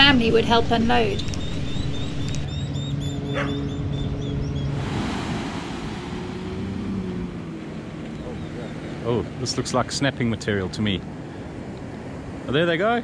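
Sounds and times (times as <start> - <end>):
low steady hum: 0.0 - 12.7
surf washing onto beach: 4.8 - 13.0.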